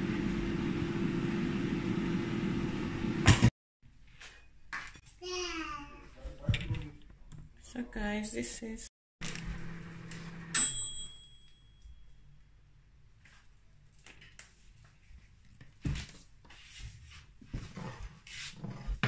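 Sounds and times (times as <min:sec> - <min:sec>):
sharp ringing clink: 0:10.6 - 0:12.3.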